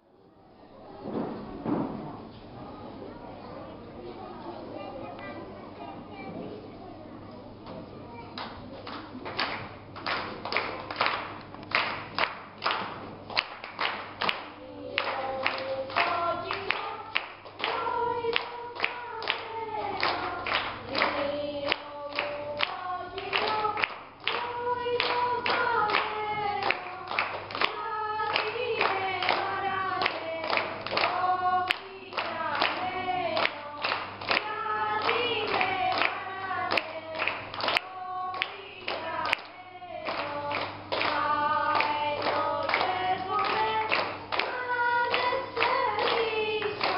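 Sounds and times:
hand-claps: 8.4s - 46.9s
children's choir singing: 12.2s - 46.9s.

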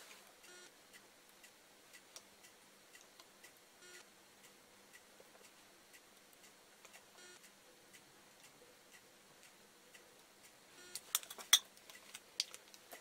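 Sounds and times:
faint regular tick: 0.9s - 11.2s.

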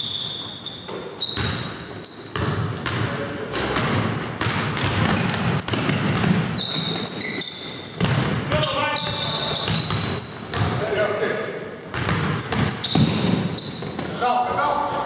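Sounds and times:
sneakers squeaking: 0.0s - 14.3s
basketball bouncing: 0.9s - 10.9s, 11.8s - 14.2s.

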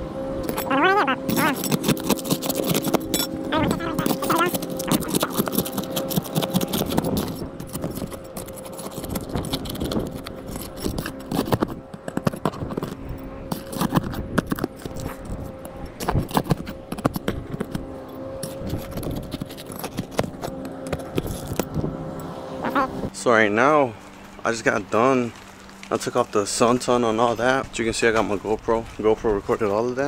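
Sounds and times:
metal being pried loose: 1.3s - 3.3s, 3.9s - 17.8s, 18.4s - 21.8s.

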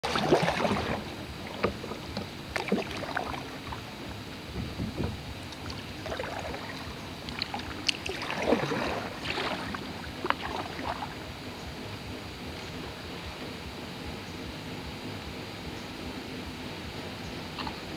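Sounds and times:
paddle splashing in water: 0.0s - 11.4s.

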